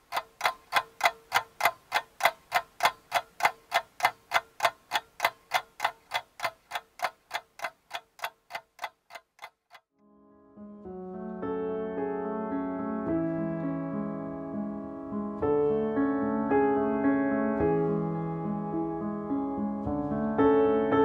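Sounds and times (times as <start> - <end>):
clock-like ticking: 0.0 - 9.9.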